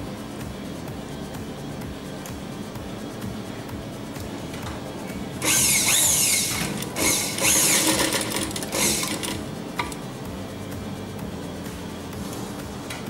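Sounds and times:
sewing machine stitching: 5.4s - 10.0s.

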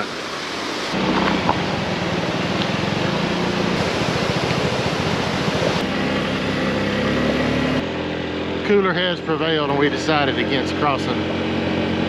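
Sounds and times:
water rushing over road: 0.0s - 7.8s
scooter engine idling: 1.0s - 12.0s.

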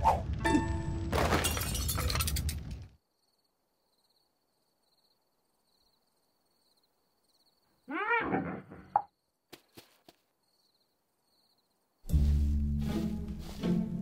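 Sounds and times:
shattering crash with ringing: 0.5s - 2.6s.

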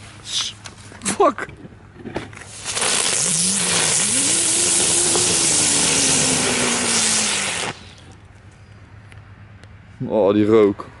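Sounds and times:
ground firework hissing: 2.4s - 8.2s.

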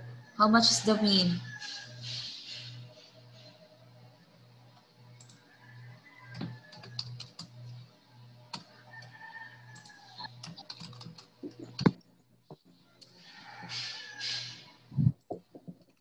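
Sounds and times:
typing on keyboard: 6.3s - 7.5s, 9.8s - 11.9s.

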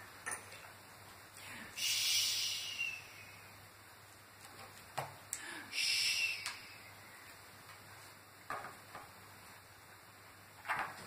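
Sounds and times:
person shushing: 5.4s - 6.8s.

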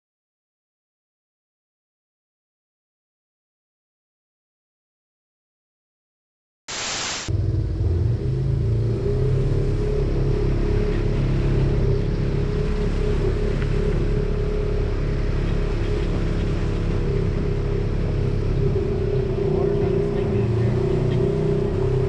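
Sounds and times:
brief hiss: 6.7s - 7.3s
vehicle engine droning: 7.3s - 22.0s.

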